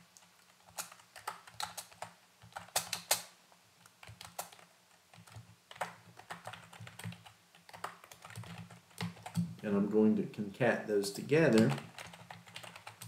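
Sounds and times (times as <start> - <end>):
computer keyboard typing: 0.2 - 3.3, 3.9 - 9.6, 11.5 - 13.0.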